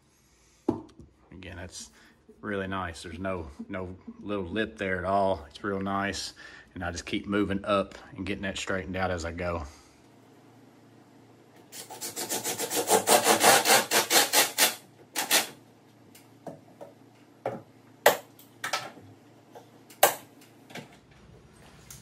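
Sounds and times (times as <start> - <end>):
rasping strokes on wood: 11.8 - 14.8.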